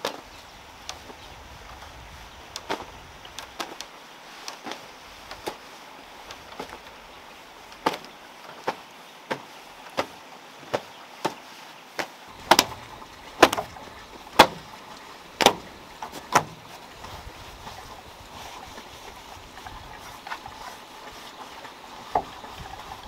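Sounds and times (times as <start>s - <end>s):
cloth rag slapping wood: 7.7s - 23.0s.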